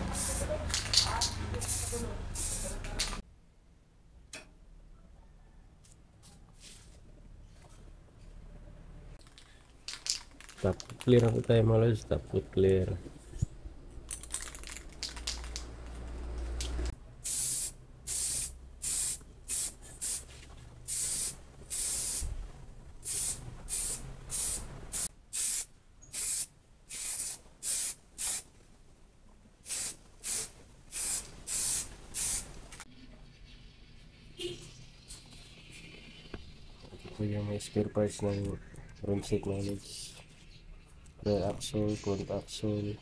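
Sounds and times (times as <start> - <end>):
aerosol spray can hissing: 0.0 - 3.2, 17.2 - 20.3, 20.9 - 22.3, 23.0 - 28.5, 29.7 - 32.5.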